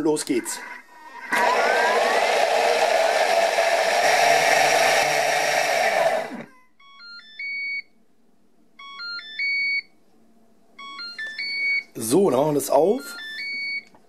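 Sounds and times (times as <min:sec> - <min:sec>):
blender motor whirring: 0:00.4 - 0:06.5.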